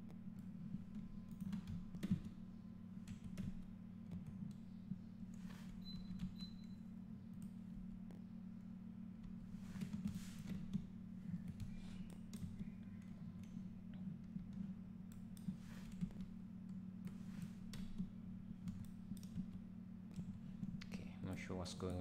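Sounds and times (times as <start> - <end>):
low steady hum: 0.0 - 22.0
computer mouse clicks: 0.4 - 2.3, 5.3 - 7.6, 9.2 - 20.9.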